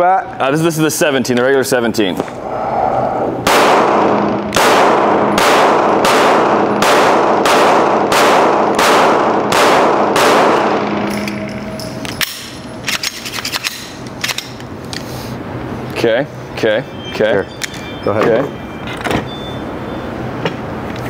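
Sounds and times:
pistol shots echoing indoors: 3.4s - 13.8s.

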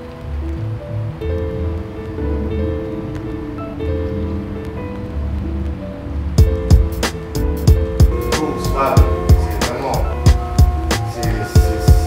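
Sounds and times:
music with held notes and bass: 3.8s - 12.0s.

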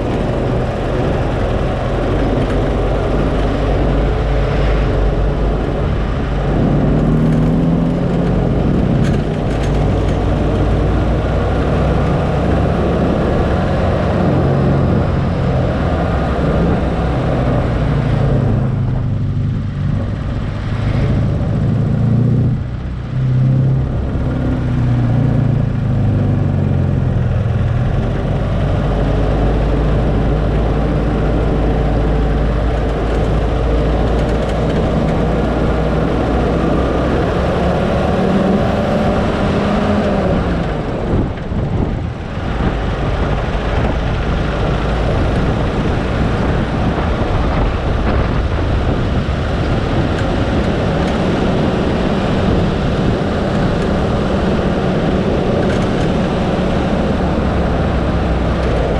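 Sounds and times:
car engine: 0.0s - 58.9s
road noise: 0.0s - 58.9s.

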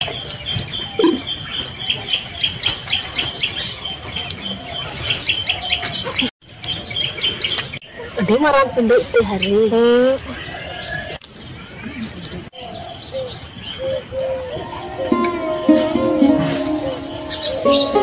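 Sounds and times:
small birds chirping: 0.0s - 18.0s
high insect drone: 14.2s - 18.0s.

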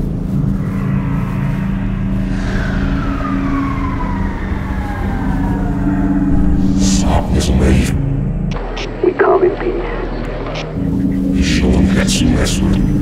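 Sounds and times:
high whine sliding downward: 0.0s - 8.9s
deep steady drone: 0.0s - 13.0s.

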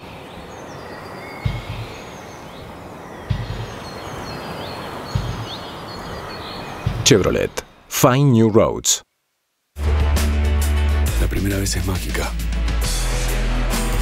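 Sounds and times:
birds chirping: 0.0s - 8.8s
steady outdoor hiss: 0.0s - 14.0s.

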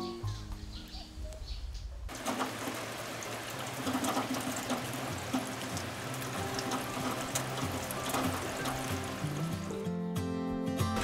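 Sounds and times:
soft background music: 0.0s - 1.9s, 5.2s - 11.0s
rushing water: 2.1s - 9.9s.

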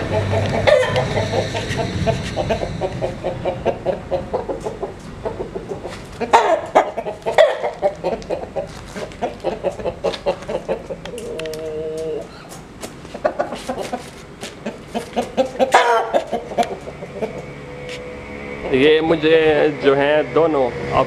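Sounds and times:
chicken held call: 0.0s - 4.8s, 5.7s - 9.9s, 14.6s - 17.4s
chicken squawks: 0.0s - 17.5s
chickens clucking: 0.0s - 18.0s.

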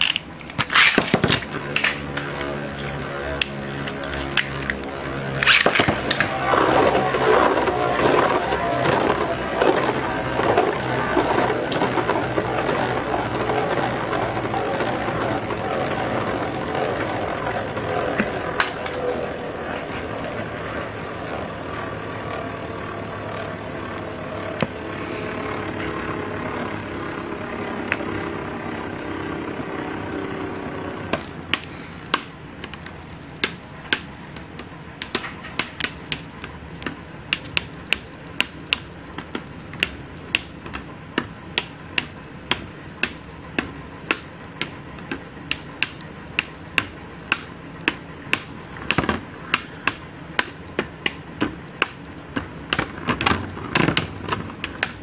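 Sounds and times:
spinning tops clacking: 0.0s - 24.8s
spinning tops whirring hum: 0.0s - 55.0s.

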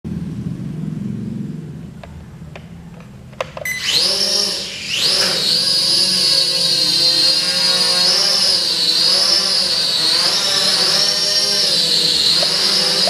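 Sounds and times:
low hum: 0.1s - 13.0s
quadcopter motors whining: 3.6s - 13.0s.

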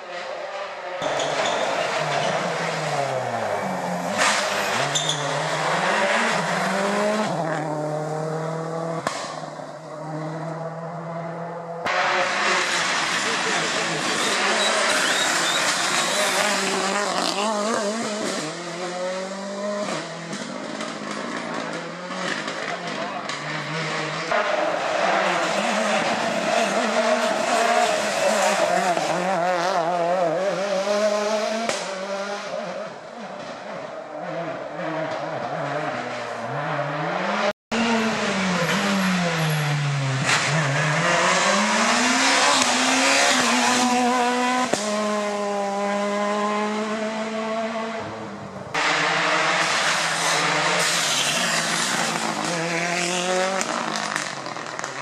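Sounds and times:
rally cars passing at speed: 0.0s - 55.0s.

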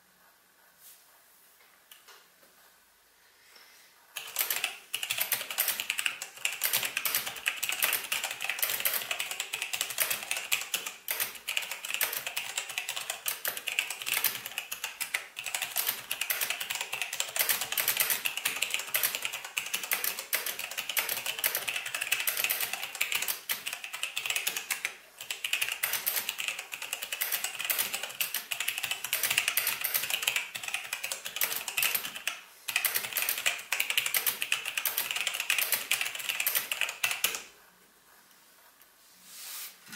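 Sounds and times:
mechanical keyboard typing: 4.2s - 37.5s.

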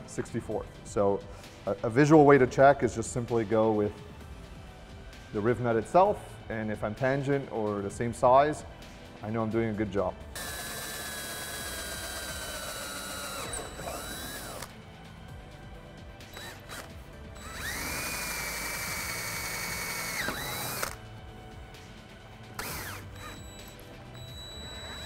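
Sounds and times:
cordless drill whining: 10.4s - 14.8s, 16.3s - 21.0s, 22.6s - 25.0s.

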